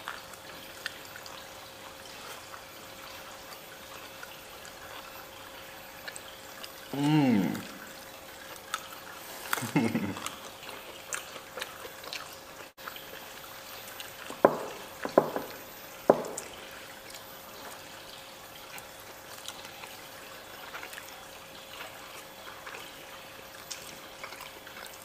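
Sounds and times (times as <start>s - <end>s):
faint steady hum: 0.0s - 25.0s
wet chewing and lip noises: 0.0s - 25.0s
knocks on plates: 14.4s - 16.5s.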